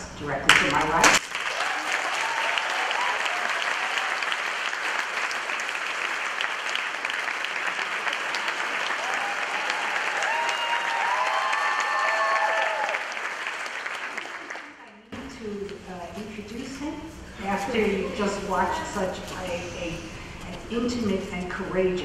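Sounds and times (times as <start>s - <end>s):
audience applauding: 1.0s - 14.9s.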